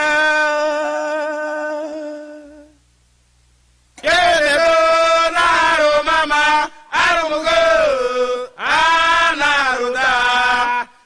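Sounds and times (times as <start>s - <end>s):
voices chanting: 4.0s - 11.0s.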